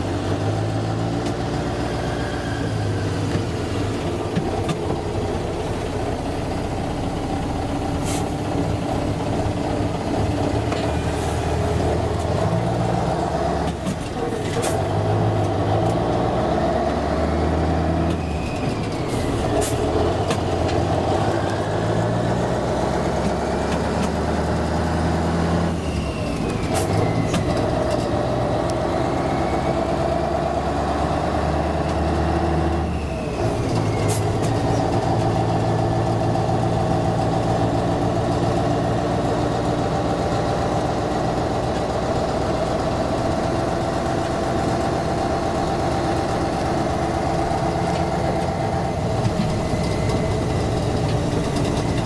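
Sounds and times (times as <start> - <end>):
diesel truck engine revving: 0.0 - 52.0.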